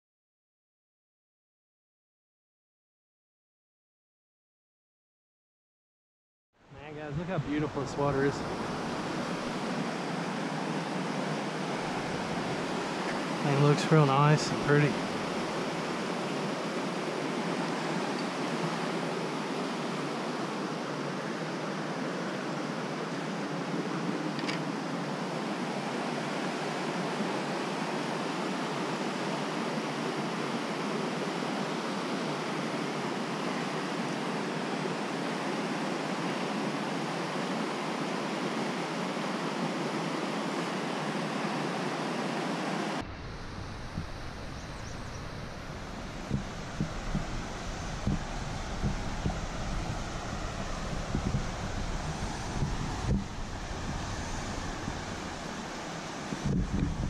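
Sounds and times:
stream rushing: 0:06.8 - 0:57.0.

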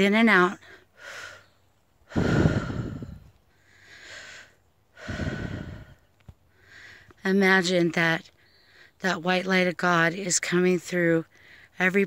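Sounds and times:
woman breathing deeply: 0:00.6 - 0:07.1.

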